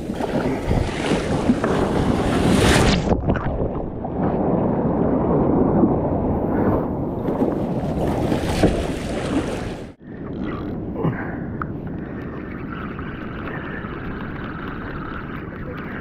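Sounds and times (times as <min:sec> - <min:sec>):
muffled waves rushing: 0:00.0 - 0:10.0.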